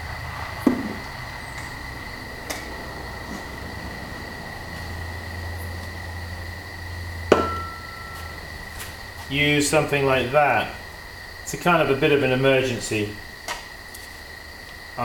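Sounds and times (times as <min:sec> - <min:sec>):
steady low hum: 0:00.0 - 0:15.0
thin high whine: 0:00.0 - 0:15.0
sharp knock: 0:07.3 - 0:07.9
brief ringing tone: 0:07.4 - 0:08.4.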